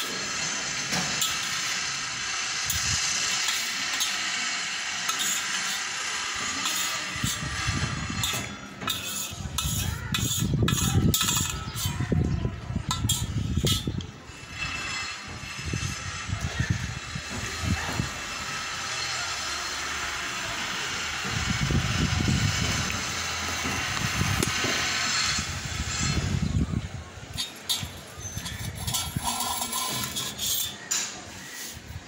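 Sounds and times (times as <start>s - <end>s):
spoon scraping a metal plate: 0.0s - 12.1s, 12.8s - 16.0s, 27.3s - 31.9s.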